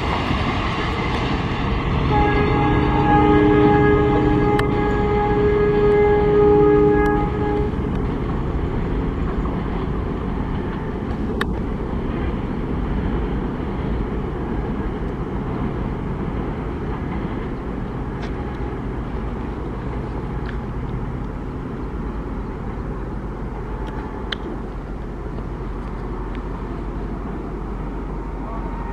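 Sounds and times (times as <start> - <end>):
freight train rumbling on track: 0.0 - 28.9
sharp clicks from wheels: 7.0 - 15.8, 16.8 - 21.6, 22.4 - 27.4.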